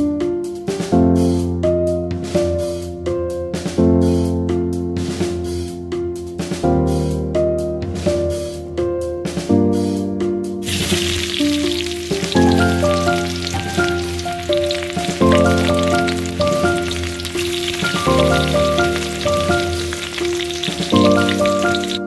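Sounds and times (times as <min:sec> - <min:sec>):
background music with chords: 0:00.0 - 0:22.0
oil sizzling in a wok: 0:10.6 - 0:22.0.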